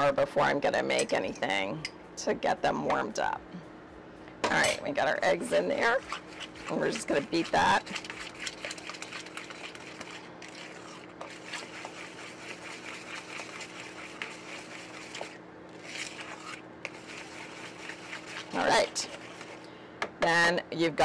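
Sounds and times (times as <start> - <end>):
wooden spoon beating eggs: 5.5 - 19.6.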